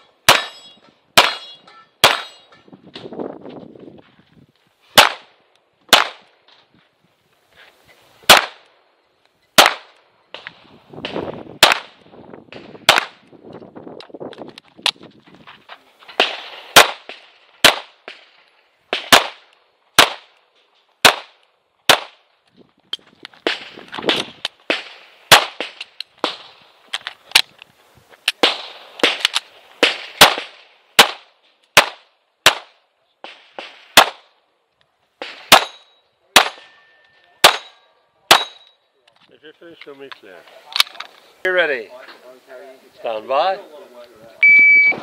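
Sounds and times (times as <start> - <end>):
pistol shots: 0.2 - 2.5, 5.0 - 6.2, 8.3 - 8.7, 9.6 - 13.2, 16.2 - 18.3, 18.9 - 20.3, 21.0 - 22.2, 23.4 - 26.6, 28.4 - 34.4, 35.2 - 36.8, 37.4 - 38.6.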